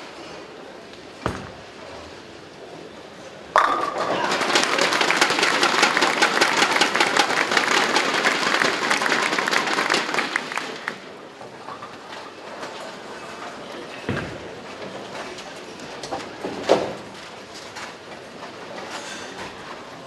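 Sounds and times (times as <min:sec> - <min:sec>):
bowling pins crashing: 0:01.2 - 0:02.1, 0:03.5 - 0:07.2
crowd clapping and cheering: 0:04.1 - 0:11.2.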